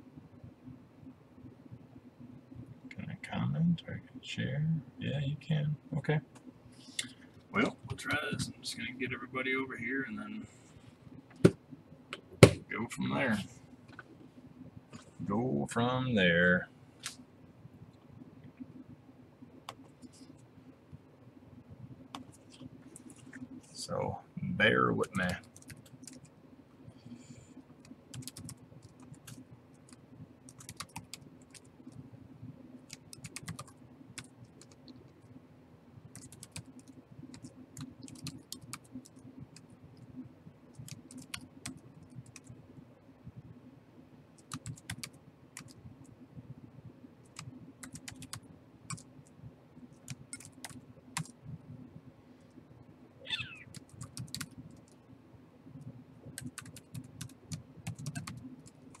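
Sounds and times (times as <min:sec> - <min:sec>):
low steady hum: 0:00.0 - 0:59.0
computer keyboard typing: 0:25.0 - 0:26.3, 0:27.8 - 0:31.7, 0:32.9 - 0:35.0, 0:36.1 - 0:39.6, 0:40.7 - 0:42.5, 0:44.4 - 0:45.8, 0:47.2 - 0:49.1, 0:50.0 - 0:51.4, 0:53.7 - 0:55.0, 0:56.3 - 0:59.0.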